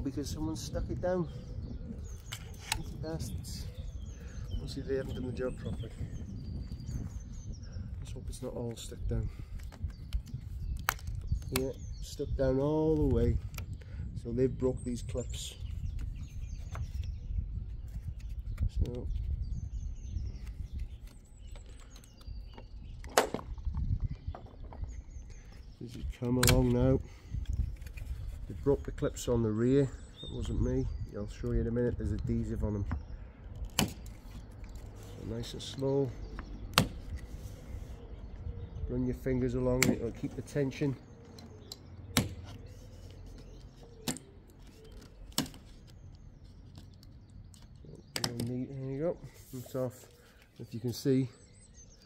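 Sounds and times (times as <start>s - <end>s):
faint birds chirping: 0.0s - 52.0s
plastic trim snapping: 9.6s - 11.7s, 26.2s - 26.8s, 33.6s - 34.8s, 36.7s - 37.3s, 39.7s - 40.2s, 41.4s - 42.6s, 43.9s - 48.5s.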